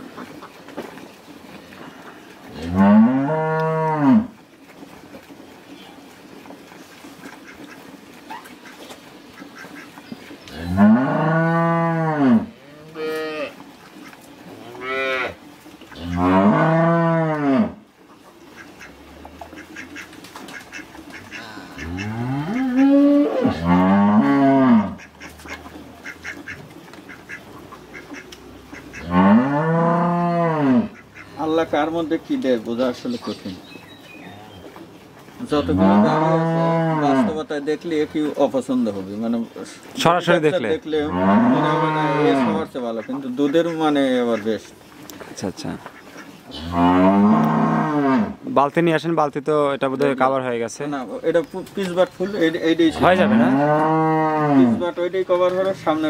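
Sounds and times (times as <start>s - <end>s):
cattle mooing: 2.5s - 4.4s, 10.5s - 13.6s, 14.5s - 15.4s, 16.0s - 17.8s, 21.2s - 26.5s, 28.9s - 31.4s, 35.5s - 37.4s, 40.9s - 42.8s, 46.5s - 48.4s, 52.8s - 54.9s.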